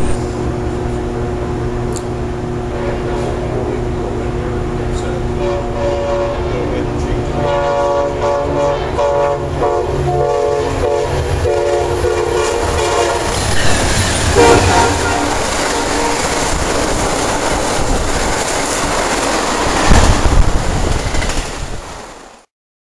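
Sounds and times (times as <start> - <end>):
train rushing noise: 0.0 - 22.5
train horn blasts: 2.6 - 3.8, 5.0 - 13.5, 14.3 - 16.7
train wheels clattering: 10.2 - 22.0.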